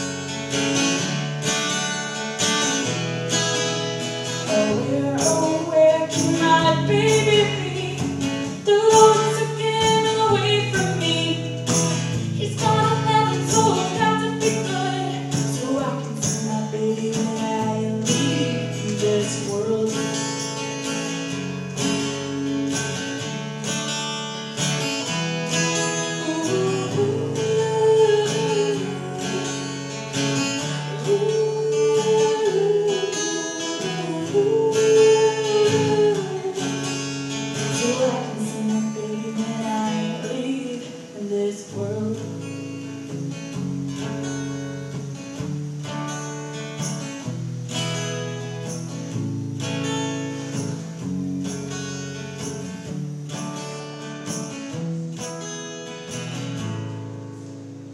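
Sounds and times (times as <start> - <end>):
acoustic guitar strumming: 0.0 - 57.9
woman singing long notes: 26.1 - 29.9, 30.8 - 37.0.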